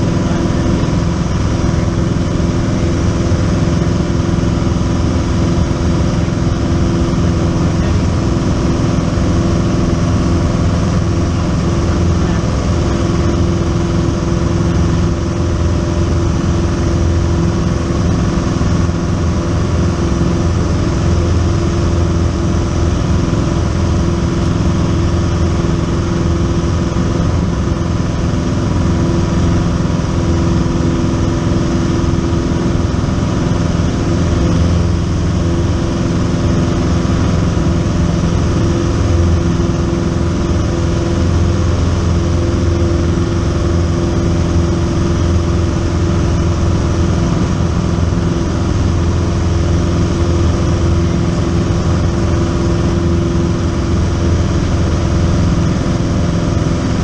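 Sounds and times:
light aircraft engine droning: 0.0 - 57.0.

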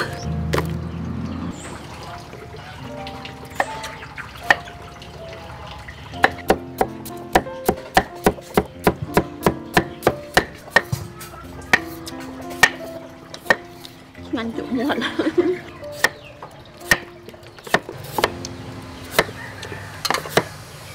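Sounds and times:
soft background music: 0.0 - 20.9
knife chopping on wooden board: 19.1 - 19.4.

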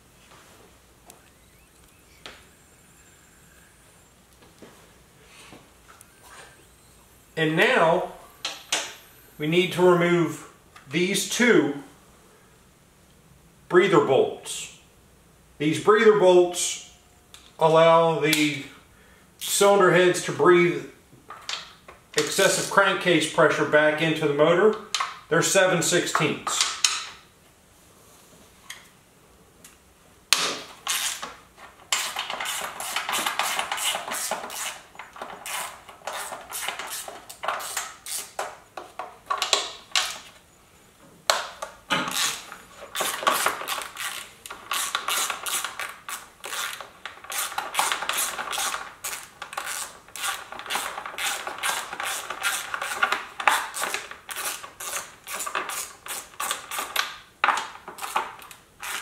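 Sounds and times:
hand ratchet clicking: 42.1 - 57.1.

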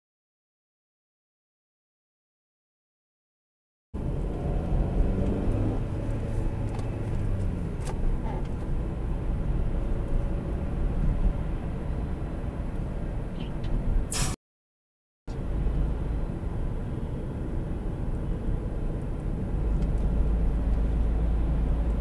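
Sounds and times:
car engine and tyre rumble: 4.0 - 14.3, 15.3 - 22.0.

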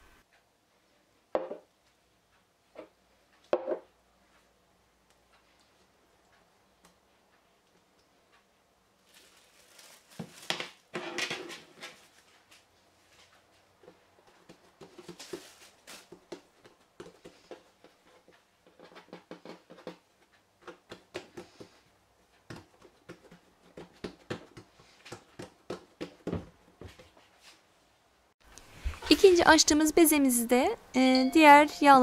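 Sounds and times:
dull thumps on tabletop: 1.4 - 1.6
fingers patting dough on wood: 13.8 - 15.5, 16.1 - 27.2.

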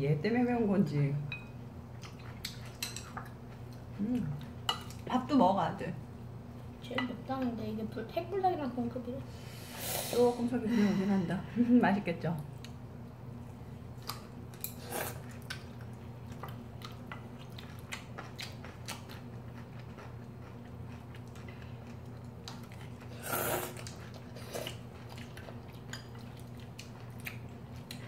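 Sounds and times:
people chewing: 1.9 - 5.1, 13.4 - 28.0
slurping noodles: 23.1 - 23.8.

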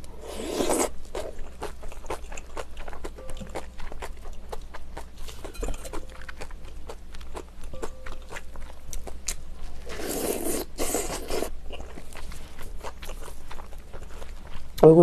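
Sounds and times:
wet chewing and lip-smacking: 0.0 - 14.9
slurping broth from spoon: 9.8 - 11.5.

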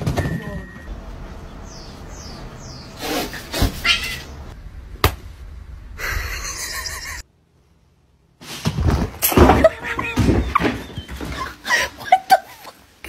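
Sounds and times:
cat crying out: 3.7 - 4.3.

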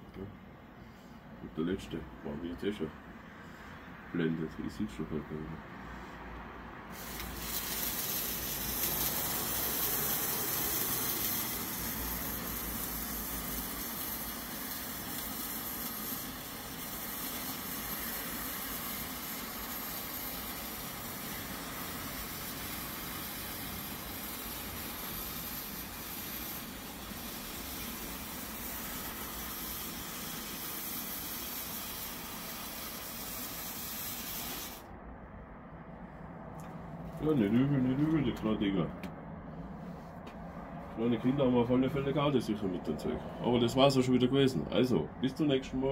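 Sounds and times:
firework fountain hissing: 6.9 - 34.9.

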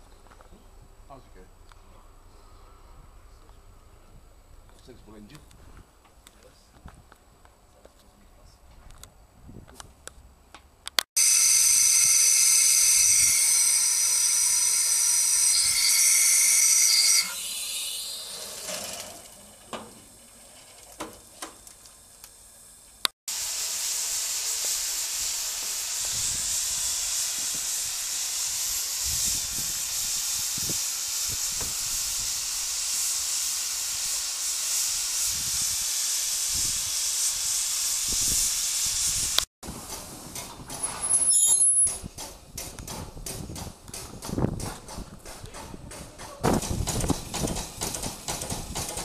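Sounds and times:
steam hissing from locomotive: 11.2 - 42.0.

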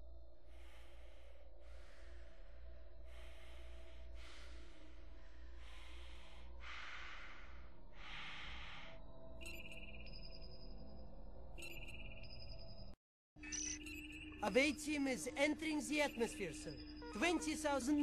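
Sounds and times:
person breathing hard in helmet: 0.4 - 9.0.

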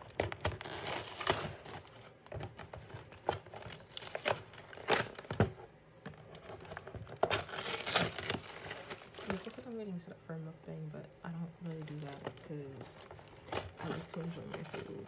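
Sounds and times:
cardboard box tearing: 0.0 - 2.0, 2.8 - 5.5, 6.3 - 9.6
paper bags crinkling: 0.0 - 5.5, 6.2 - 9.8, 11.6 - 15.0.

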